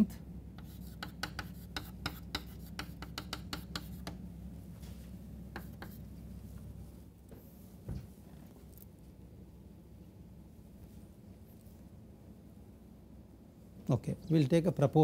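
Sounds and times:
steady low hum: 0.0 - 15.0
chalk tapping on chalkboard: 0.6 - 4.2, 5.5 - 6.1.

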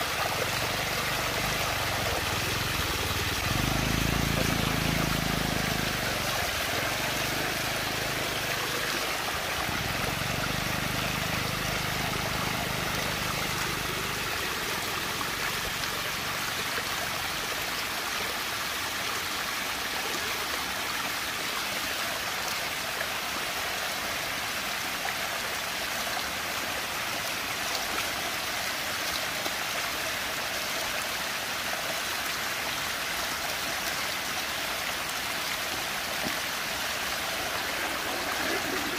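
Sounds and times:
water swirling down vortex: 37.0 - 38.9.

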